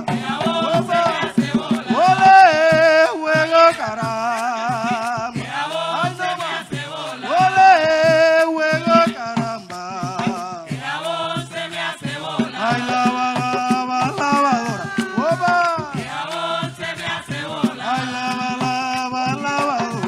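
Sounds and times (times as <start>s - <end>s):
hand drums: 0.0s - 20.0s
person singing with vibrato: 0.0s - 20.0s.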